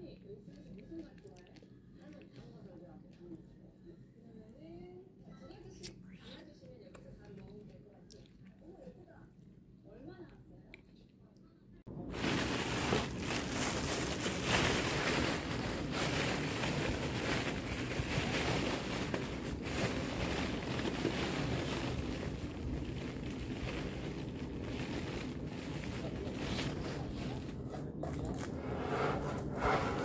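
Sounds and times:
plastic bag rustling: 0:11.9 - 0:30.0.

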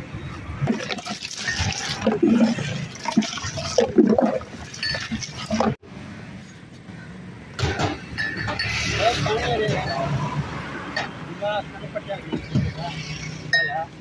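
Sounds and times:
liquid sloshing in a cooler: 0:00.6 - 0:05.8.

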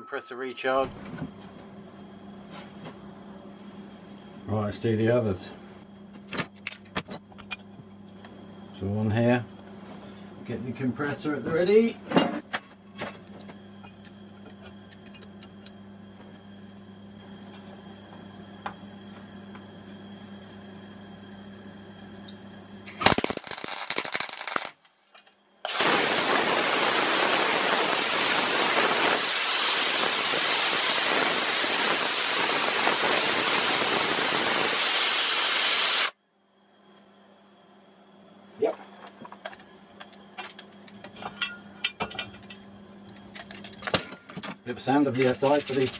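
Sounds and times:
crackling weld: 0:22.8 - 0:24.9, 0:25.6 - 0:36.1
compressed air hiss: 0:25.6 - 0:36.1.

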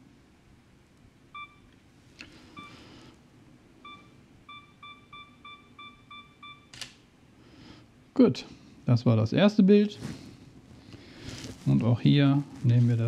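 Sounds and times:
camera click: 0:06.7 - 0:07.0.

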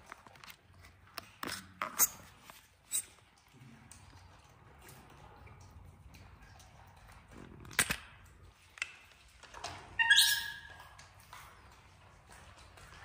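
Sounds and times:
baby monkey squealing: 0:10.0 - 0:10.7.

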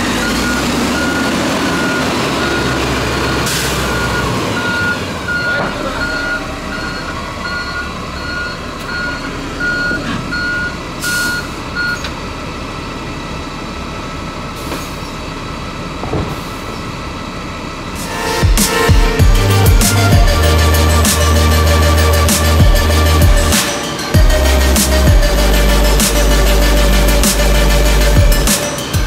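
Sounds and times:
reversing alarm beeping: 0:00.0 - 0:12.1
diesel engine running: 0:00.0 - 0:29.0.

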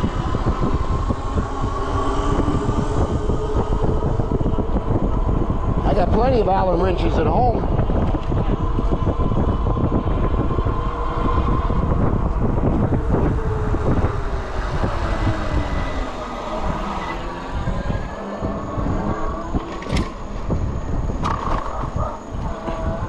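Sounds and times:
electric motor whine: 0:00.0 - 0:23.0
wind buffeting microphone: 0:00.0 - 0:23.0.

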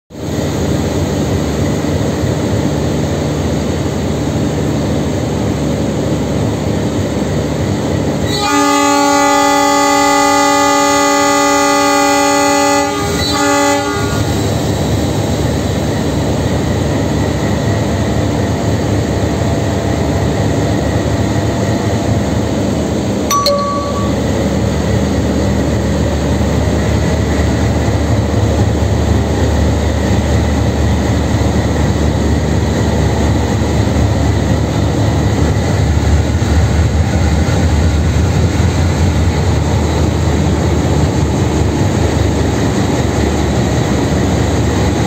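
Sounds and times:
locomotive horn blasts: 0:08.3 - 0:14.3.

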